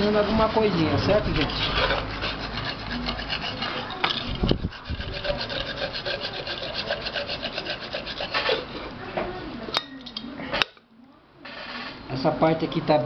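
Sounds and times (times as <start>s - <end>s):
sandpaper rubbing on metal: 1.4s - 8.7s.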